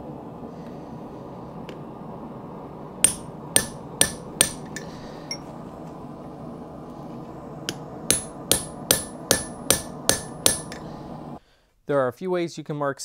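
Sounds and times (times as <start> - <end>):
hammer blows on steel: 7.7 - 10.8.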